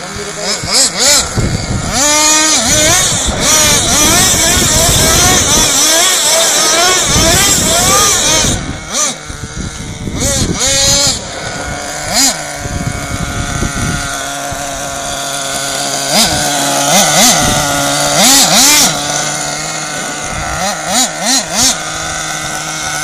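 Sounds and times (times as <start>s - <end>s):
rc truck engine idling and revving: 0.0s - 23.0s.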